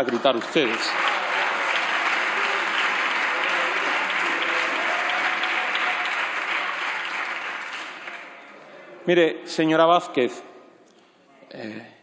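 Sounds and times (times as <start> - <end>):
crowd clapping: 0.0 - 8.7.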